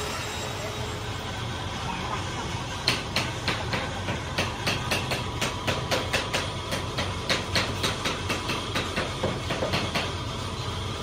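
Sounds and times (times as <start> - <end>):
machinery hum: 0.0 - 11.0
sharp knocks: 2.8 - 10.2.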